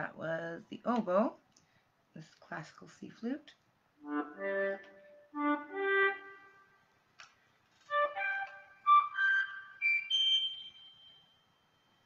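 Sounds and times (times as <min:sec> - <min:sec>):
electronic flute notes: 0:04.0 - 0:06.8, 0:07.9 - 0:11.4.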